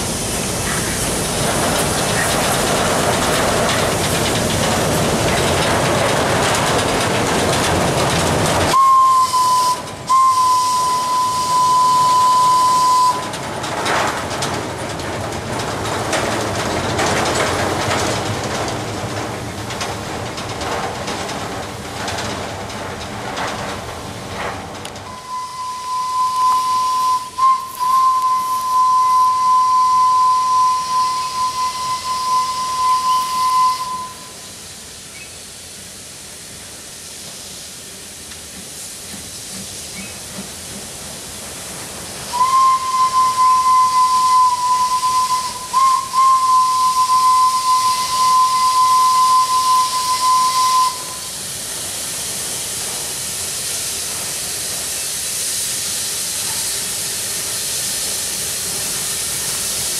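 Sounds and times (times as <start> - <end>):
steam engine hissing: 0.0 - 59.9
steam whistle blasts: 8.7 - 13.3, 25.1 - 34.5, 42.3 - 51.4.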